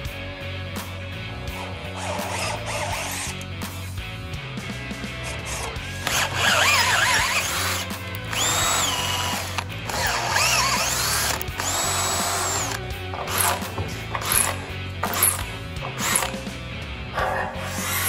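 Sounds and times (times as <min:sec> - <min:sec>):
cordless drill whining: 0:05.2 - 0:16.4, 0:17.6 - 0:18.0.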